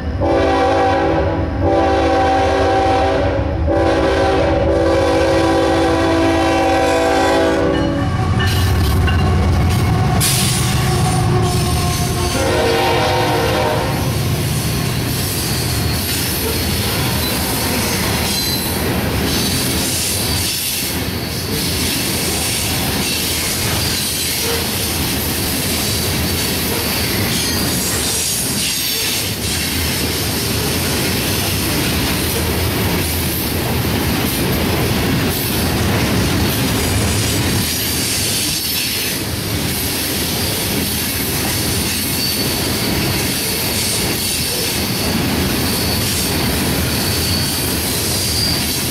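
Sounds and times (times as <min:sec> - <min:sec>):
train wheels clattering on rails: 0:06.9 - 0:48.9
wheel squeal: 0:41.9 - 0:43.6, 0:45.6 - 0:48.8.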